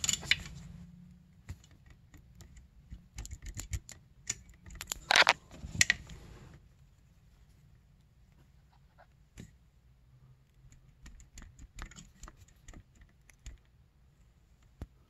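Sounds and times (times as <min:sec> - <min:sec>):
cable clicks and rattles: 0:01.5 - 0:06.0.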